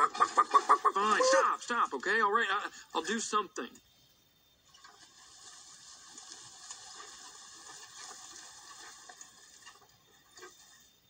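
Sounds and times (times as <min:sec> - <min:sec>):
faint rustling hiss: 0:00.2 - 0:11.0.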